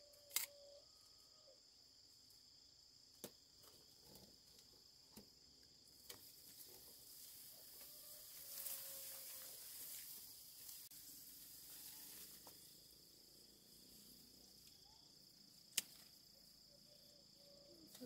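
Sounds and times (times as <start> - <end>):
sharp click: 0.2 - 0.6
grass rustling: 6.0 - 14.7
high-pitched insect drone: 7.1 - 15.4.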